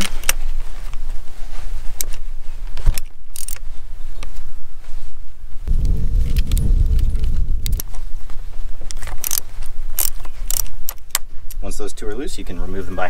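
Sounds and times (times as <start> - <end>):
low rumble with steady hum: 4.6 - 11.9
ratchet clicking: 10.0 - 10.7.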